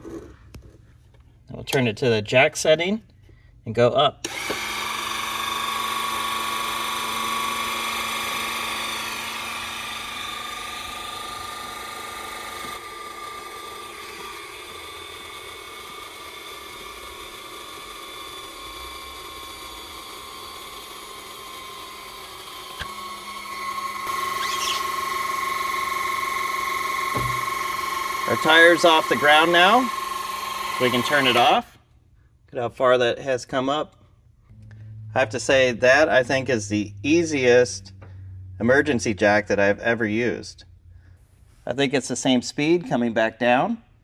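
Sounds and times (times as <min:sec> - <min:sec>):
electric hydraulic pump whining: 0:04.2 - 0:31.7.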